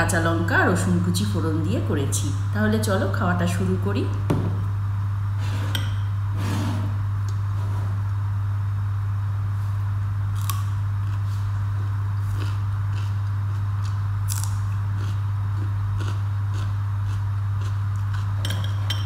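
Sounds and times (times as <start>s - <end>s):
steady low hum: 0.0s - 19.0s
cucumber crunch: 10.3s - 18.4s.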